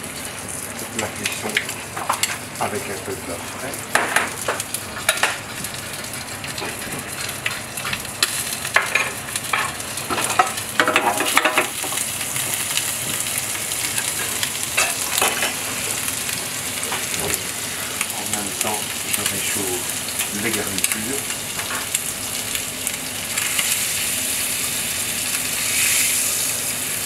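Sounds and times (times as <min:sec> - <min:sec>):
meat sizzling in butter: 0:00.0 - 0:27.0.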